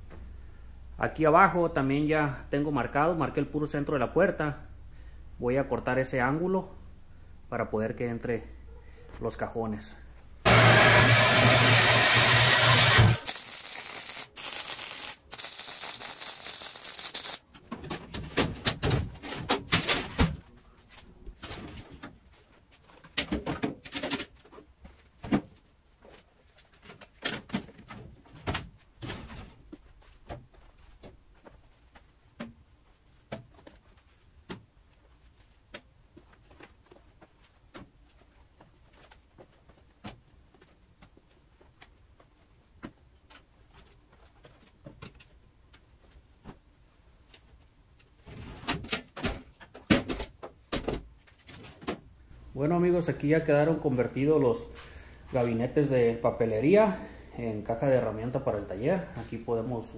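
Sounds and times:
band saw cutting steel: 10.5s - 17.4s.

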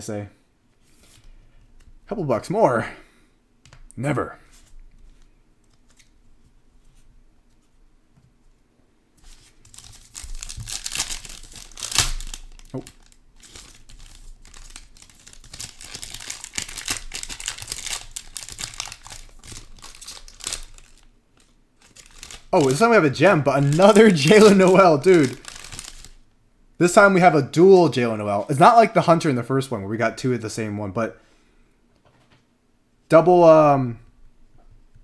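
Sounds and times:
foil pouch crinkling: 9.2s - 26.2s
foil pouch ripping: 9.2s - 26.2s.

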